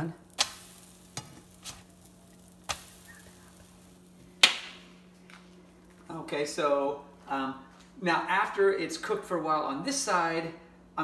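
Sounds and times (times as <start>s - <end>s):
pancakes sizzling: 0.0s - 6.2s.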